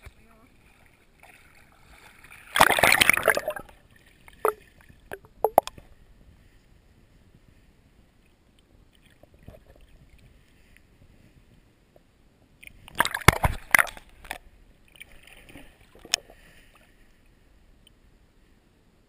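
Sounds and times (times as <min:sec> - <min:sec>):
splashing: 0:00.0 - 0:05.9, 0:12.7 - 0:16.8
water sloshing underwater: 0:00.0 - 0:18.6.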